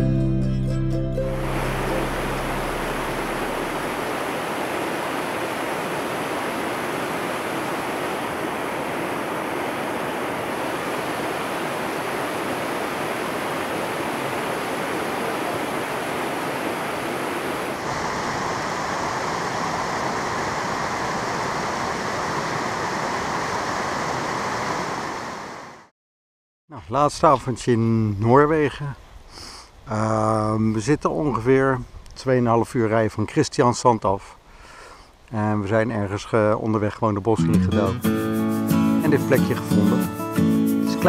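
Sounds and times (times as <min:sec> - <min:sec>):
fast-running water rushing: 0:01.2 - 0:25.7.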